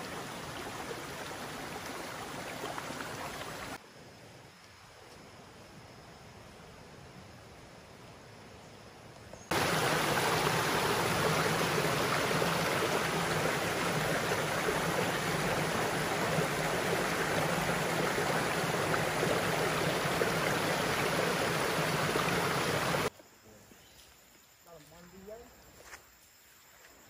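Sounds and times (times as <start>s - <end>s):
stream flowing over rocks: 0.0s - 3.8s, 9.5s - 23.1s.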